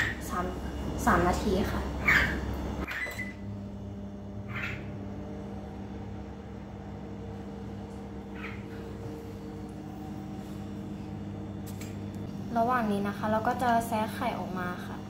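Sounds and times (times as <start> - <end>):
microwave oven humming: 0.0 - 15.0
microwave button beeps: 2.9 - 3.5.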